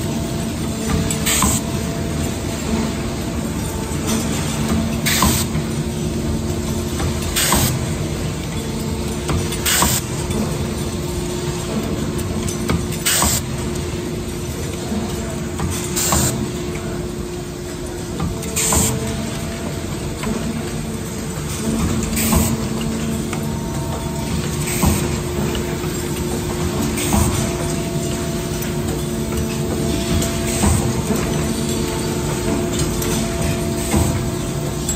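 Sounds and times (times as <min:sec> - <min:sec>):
machinery humming: 0:00.0 - 0:34.9.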